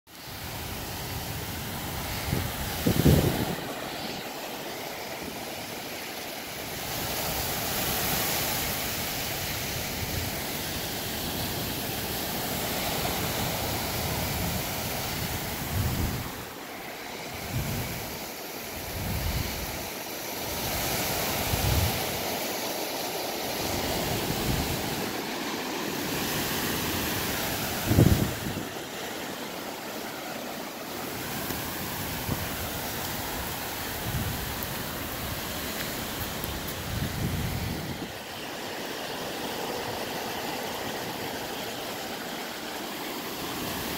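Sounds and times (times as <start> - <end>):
small waves washing on sand: 0.1 - 43.9
wind buffeting microphone: 0.4 - 4.0, 12.6 - 16.5, 17.2 - 18.2, 18.8 - 19.9, 20.5 - 22.2, 23.6 - 25.2, 26.0 - 28.9, 31.0 - 38.2.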